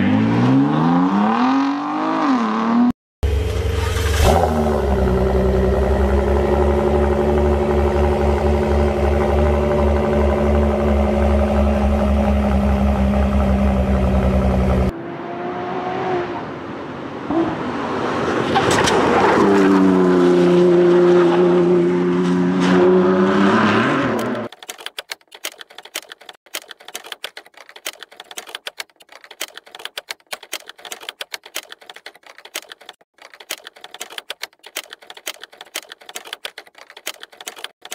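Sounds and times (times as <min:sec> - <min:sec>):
rapid key clicking: 0:24.5 - 0:37.9.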